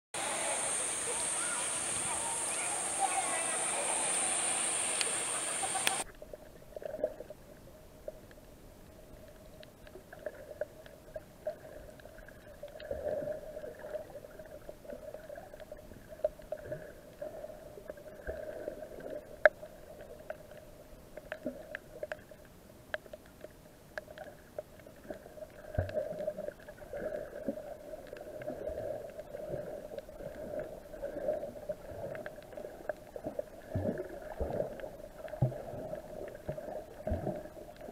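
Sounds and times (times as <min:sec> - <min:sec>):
muffled underwater hum: 0:00.2 - 0:06.1.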